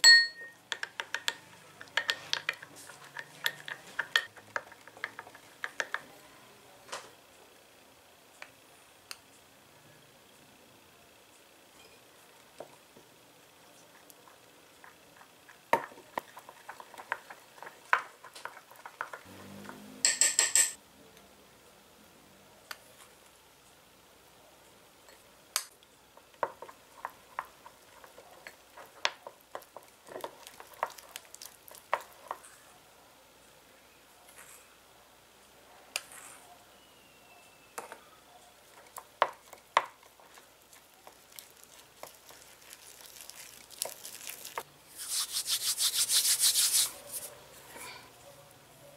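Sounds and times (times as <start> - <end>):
spoon tapping against glass: 0.0 - 2.6
spoon stirring in glass bowl: 0.0 - 6.1, 13.8 - 20.7, 26.2 - 32.6, 38.6 - 48.0.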